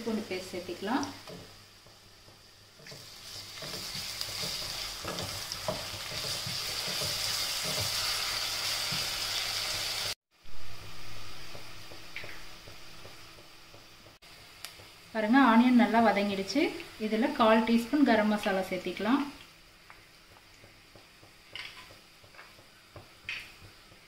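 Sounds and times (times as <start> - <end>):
onions sizzling in hot oil: 0.0 - 24.0
spatula stirring and scraping pan: 1.2 - 9.4.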